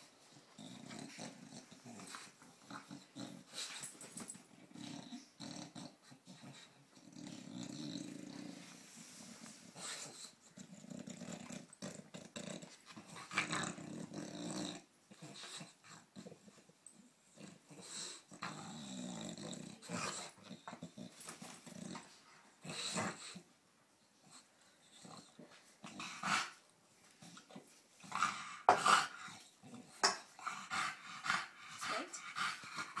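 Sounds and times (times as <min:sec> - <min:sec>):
dog growling: 0:00.3 - 0:03.8, 0:04.4 - 0:23.5.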